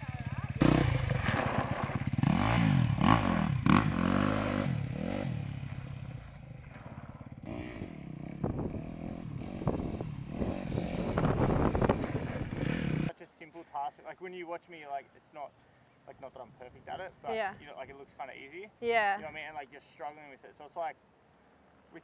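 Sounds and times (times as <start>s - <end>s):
dirt bike engine revving: 0.0s - 13.1s.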